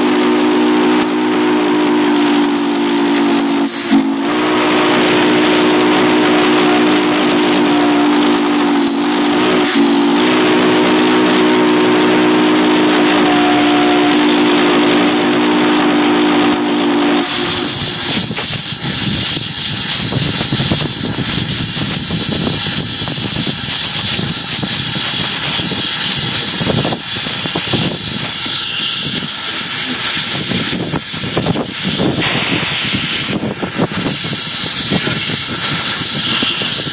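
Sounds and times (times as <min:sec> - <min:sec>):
loud steam hiss: 0:00.0 - 0:36.9
steam locomotive chime whistle: 0:00.0 - 0:36.9
thin high whine: 0:00.0 - 0:36.9
locomotive rattling: 0:01.4 - 0:36.9.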